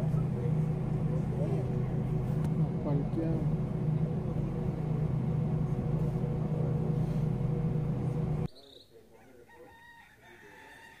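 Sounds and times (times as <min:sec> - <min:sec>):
jet cabin drone: 0:00.0 - 0:08.5.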